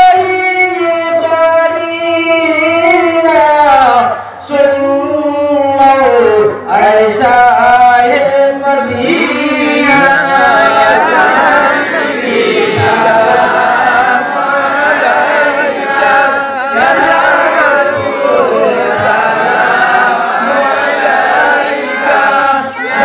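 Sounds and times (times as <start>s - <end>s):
voice on a microphone: 0.0s - 21.2s
group chanting unaccompanied: 6.1s - 23.0s.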